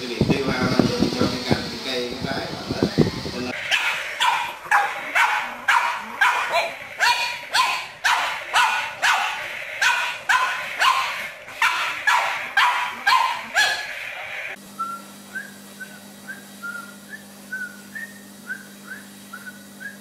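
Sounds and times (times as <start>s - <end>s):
puppy barking: 3.6s - 14.0s.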